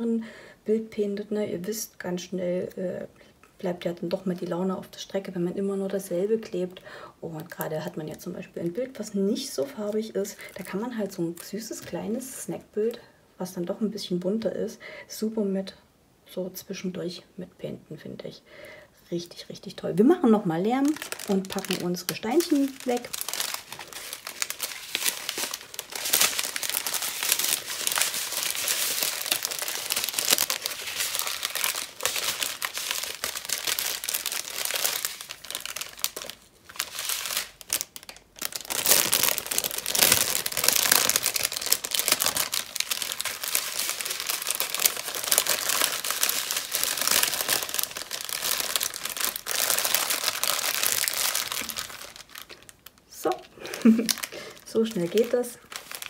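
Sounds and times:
plastic bags crinkling: 9.8s - 11.9s, 20.6s - 56.0s.

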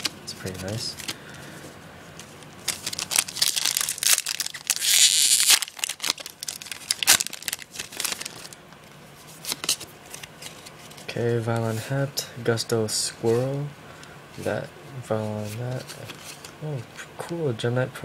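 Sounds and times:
cards rustling: 0.0s - 8.6s, 9.4s - 11.7s
foil wrapper crinkling and tearing: 2.6s - 8.6s.

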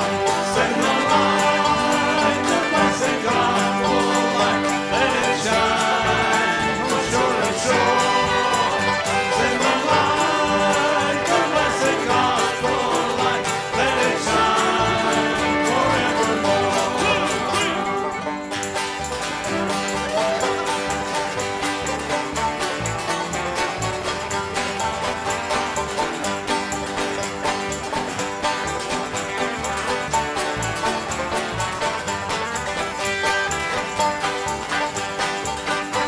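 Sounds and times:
men singing: 0.0s - 18.4s
banjo: 0.0s - 36.0s
bluegrass band playing: 0.0s - 36.0s
fiddle: 0.0s - 36.0s.

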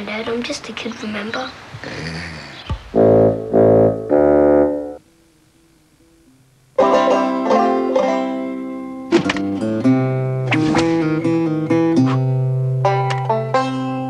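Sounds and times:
banjo-style plucked music: 6.8s - 14.0s.

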